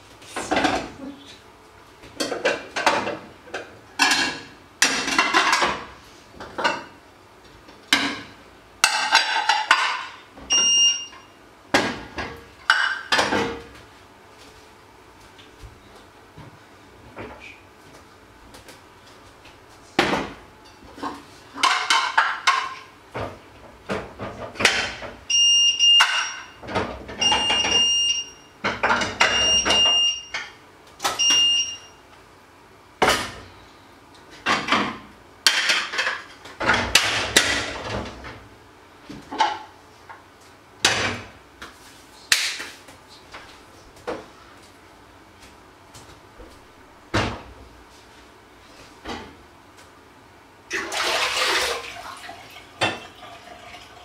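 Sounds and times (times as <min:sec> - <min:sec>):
electronic appliance beep: 0:10.5 - 0:11.4, 0:25.3 - 0:26.6, 0:27.2 - 0:28.6, 0:29.2 - 0:30.4, 0:31.2 - 0:32.0
running water: 0:50.7 - 0:54.0.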